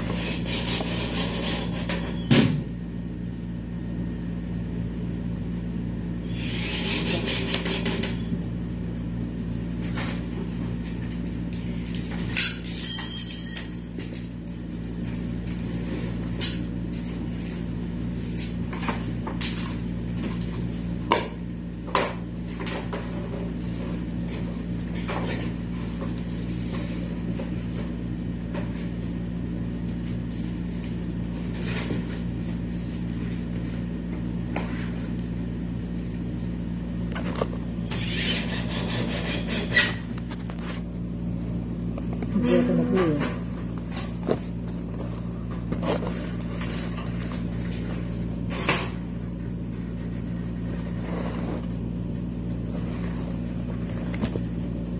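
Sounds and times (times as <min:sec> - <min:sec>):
high-pitched rasp: 0:00.0 - 0:02.1, 0:06.2 - 0:08.1, 0:37.9 - 0:40.0
low machine hum: 0:00.0 - 0:54.9.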